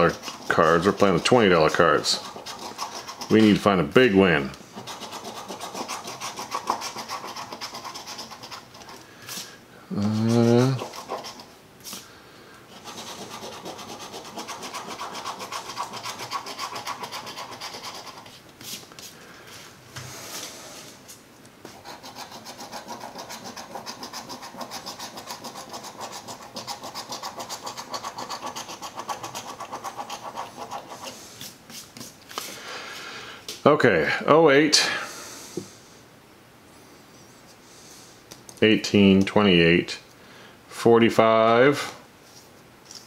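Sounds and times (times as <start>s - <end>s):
coin scratching lottery ticket: 0.0s - 3.8s, 4.7s - 8.9s, 10.0s - 11.5s, 12.7s - 18.3s, 21.8s - 31.2s.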